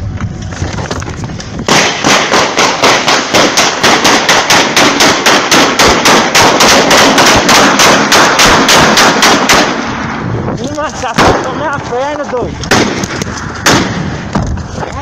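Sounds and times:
rapid gunshots: 1.6 - 10.1, 12.7 - 14.4.

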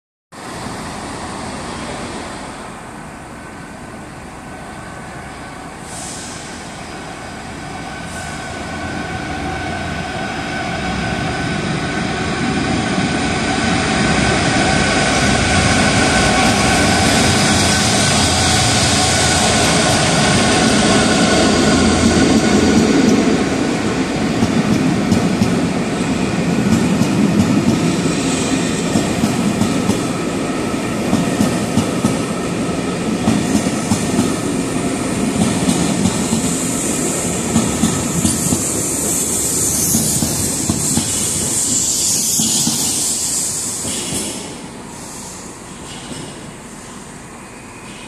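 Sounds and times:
diesel locomotive engine: 0.4 - 48.0
train coaches rolling by: 0.4 - 48.0.

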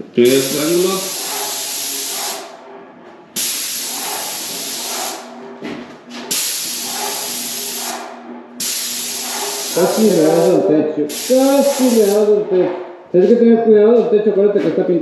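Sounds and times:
paint sprayer hissing: 0.2 - 2.6, 3.4 - 5.4, 6.3 - 12.4.

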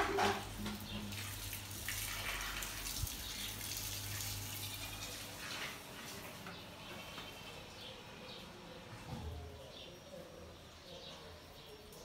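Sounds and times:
shower water spraying: 1.0 - 6.4.

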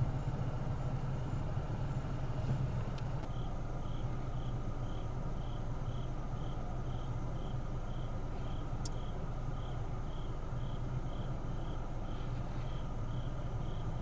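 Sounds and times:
steady low hum: 0.0 - 14.0
cricket chirping: 3.2 - 14.0.

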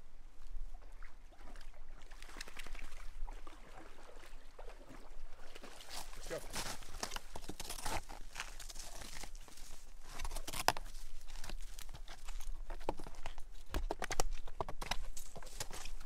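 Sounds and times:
snowshoe footsteps crunching snow: 5.8 - 13.6.

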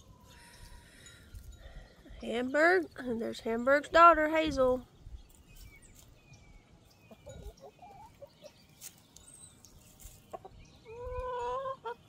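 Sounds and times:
hens clucking: 6.9 - 9.0, 9.9 - 12.0.

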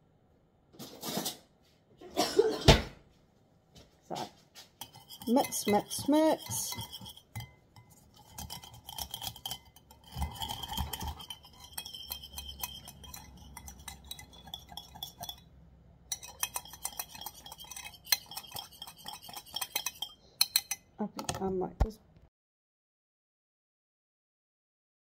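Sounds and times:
whisk clinking against glass bowl: 4.8 - 15.5, 16.1 - 21.4.

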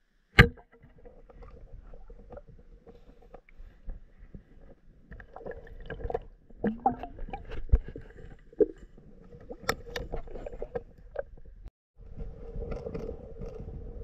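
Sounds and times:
water gurgle: 0.4 - 11.7
underwater clicks and knocks: 5.1 - 11.7.

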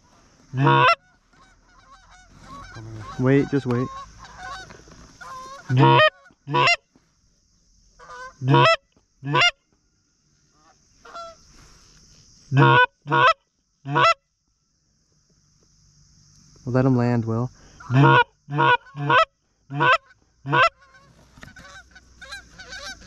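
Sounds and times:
goose honking: 0.5 - 6.8, 8.0 - 9.5, 12.5 - 14.2, 17.8 - 23.0.

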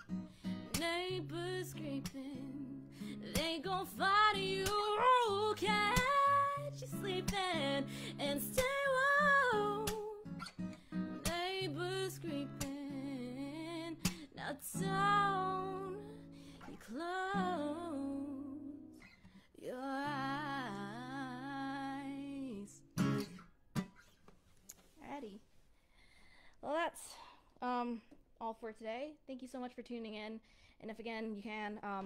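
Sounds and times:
strummed acoustic guitar: 0.0 - 19.4, 20.0 - 24.2
woman singing with vibrato: 0.7 - 10.3, 11.2 - 18.9, 19.6 - 22.8.

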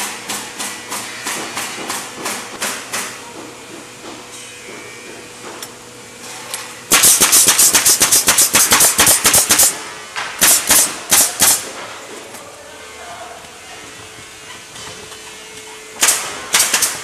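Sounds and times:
factory machinery hum: 0.0 - 17.0
rapid hammering on wood: 0.3 - 4.8, 6.9 - 9.8.

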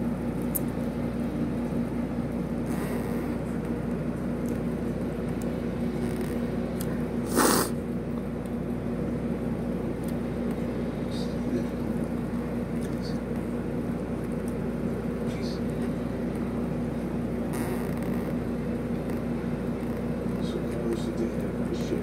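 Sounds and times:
steady background hum: 0.0 - 22.0
sharp breath or slurp: 7.2 - 7.8.

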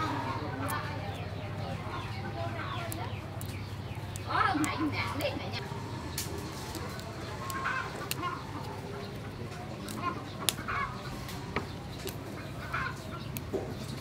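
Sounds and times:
chickens clucking: 0.0 - 14.0
vegetable stems snapping: 2.7 - 5.4, 6.1 - 8.8, 9.5 - 14.0.

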